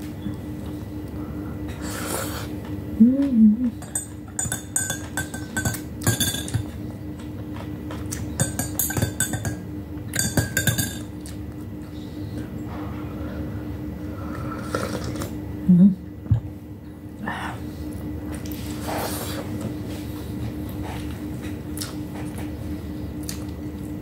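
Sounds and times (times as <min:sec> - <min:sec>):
person humming: 0:03.0 - 0:03.8, 0:15.7 - 0:16.0
spoon clinking against glass mug: 0:03.8 - 0:06.6, 0:10.2 - 0:11.1.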